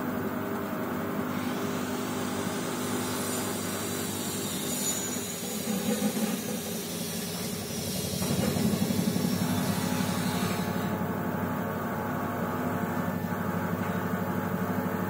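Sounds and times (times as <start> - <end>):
washing machine drum humming: 5.4 - 15.0.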